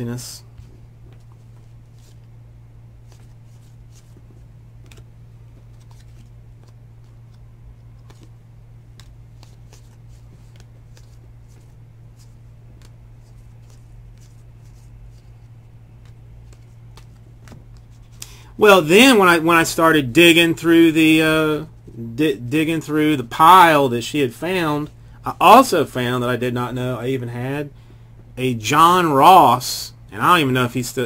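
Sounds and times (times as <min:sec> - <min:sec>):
low electrical hum: 0:00.0 - 0:31.0
trading cards flipping: 0:00.6 - 0:18.4.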